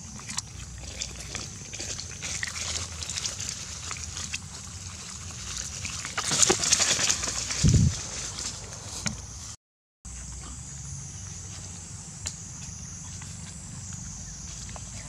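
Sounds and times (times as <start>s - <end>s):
rustling of grass and dry leaves: 0.0s - 9.5s
monkeys scuffling: 1.2s - 9.0s.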